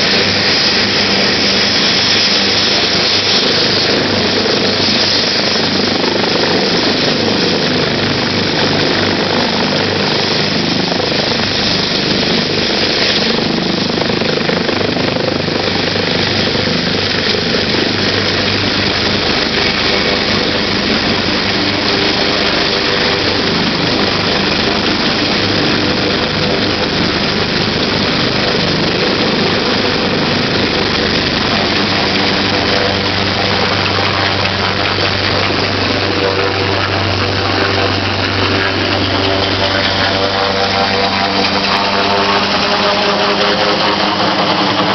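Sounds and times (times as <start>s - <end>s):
helicopter turbines and rotor: 0.0s - 44.9s.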